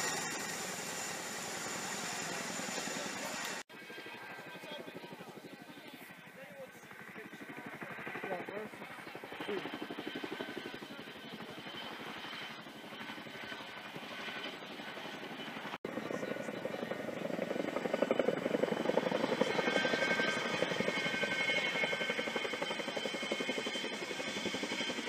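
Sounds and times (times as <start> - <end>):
helicopter rotor blades chopping: 0.0 - 25.0.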